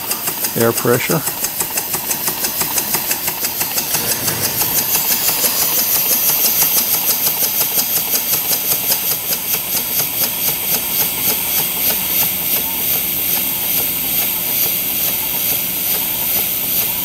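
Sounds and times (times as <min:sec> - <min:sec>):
steam engine exhaust puffs: 0:01.1 - 0:06.9
hiss of escaping air: 0:03.7 - 0:06.5.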